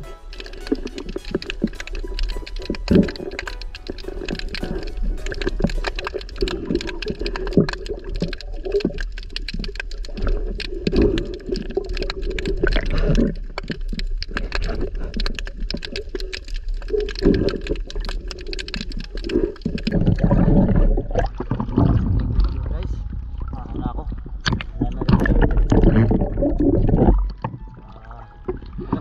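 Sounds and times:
bubbles and splashing: 0:00.0 - 0:29.0
underwater crackle of clicks: 0:00.3 - 0:21.7
low rumble of moving water: 0:00.8 - 0:29.0.

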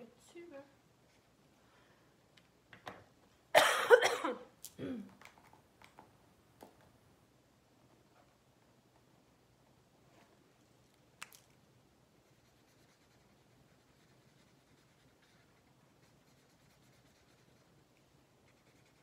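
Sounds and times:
marker scratching on paper: 0:12.2 - 0:19.0.

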